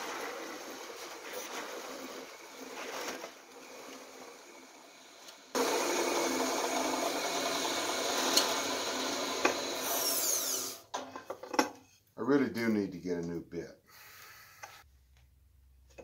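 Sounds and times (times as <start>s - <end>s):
drill press motor running: 0.0s - 10.8s
loud rasping machine noise: 0.0s - 10.8s
drill press boring into wood: 0.0s - 10.9s.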